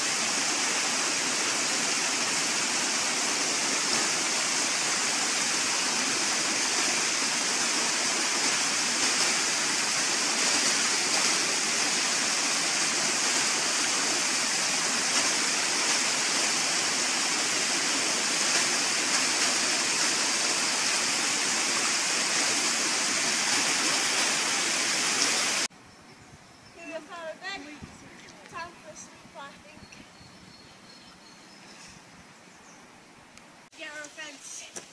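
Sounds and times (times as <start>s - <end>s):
stream rushing over rocks: 0.0s - 25.7s.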